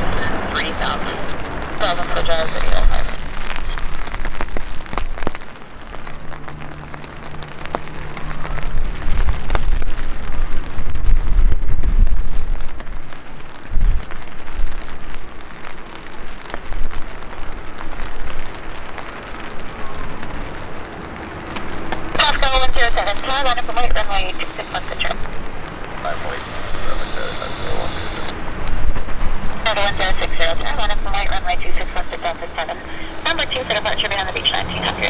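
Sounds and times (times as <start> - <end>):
jet engine rumble: 0.0 - 15.7, 16.6 - 35.0
steady hiss: 0.0 - 35.0.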